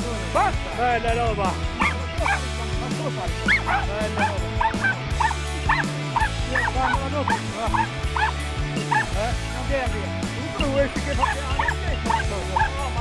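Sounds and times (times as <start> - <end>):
background music with bass line: 0.0 - 13.0
dogs yelping and barking: 1.8 - 2.5, 3.3 - 9.1, 11.2 - 12.7.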